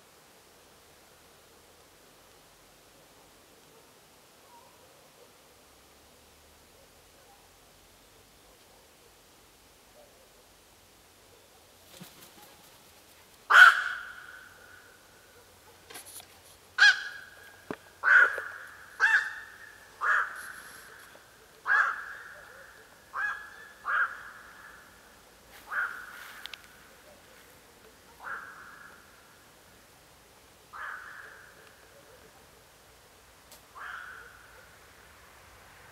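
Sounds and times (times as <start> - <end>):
heron calling: 13.5 - 15.0, 16.8 - 25.0.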